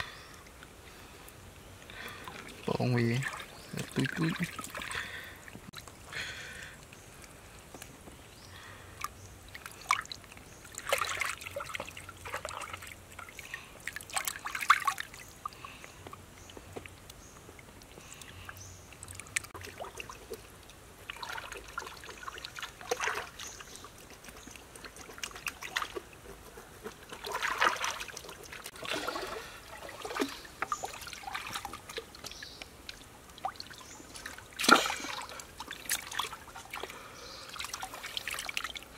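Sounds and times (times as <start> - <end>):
stream water trickling: 0.0 - 38.9
hands splashing in water: 27.1 - 32.3, 33.4 - 36.9.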